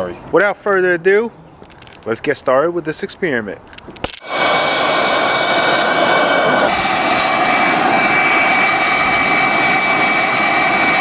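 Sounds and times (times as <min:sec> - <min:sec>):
gas torches hissing: 0:04.0 - 0:11.0
thin high whistle: 0:04.2 - 0:11.0.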